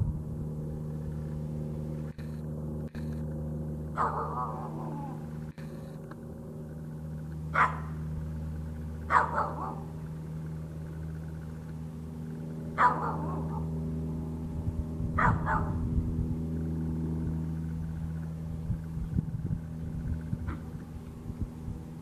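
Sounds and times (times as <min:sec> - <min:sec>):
steady low hum: 0:00.0 - 0:22.0
dog barking: 0:04.0 - 0:05.2, 0:07.5 - 0:08.0, 0:09.1 - 0:09.9, 0:12.8 - 0:13.7, 0:15.2 - 0:15.8.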